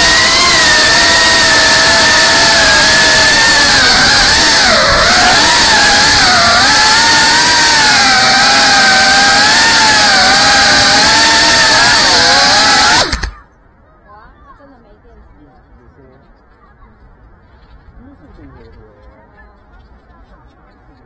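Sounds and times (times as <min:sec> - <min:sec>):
drone motors whining: 0:00.0 - 0:13.6.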